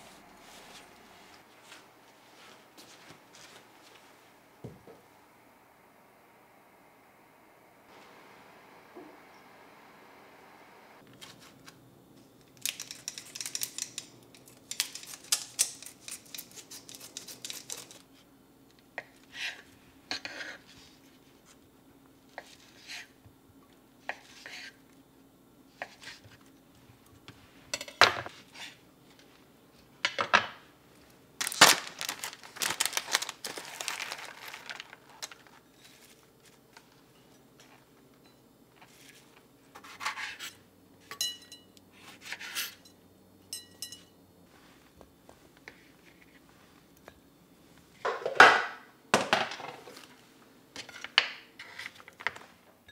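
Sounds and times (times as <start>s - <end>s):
plastic packaging rustling: 31.4s - 37.0s.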